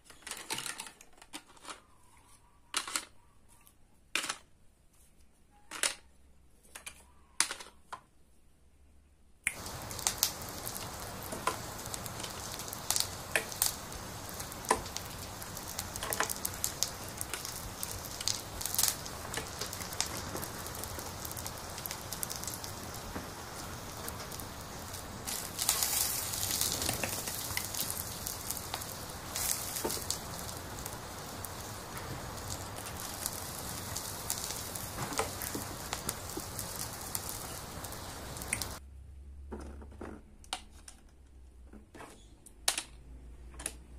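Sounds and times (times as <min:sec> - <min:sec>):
toy grill frying sizzle: 0:09.5 - 0:38.8.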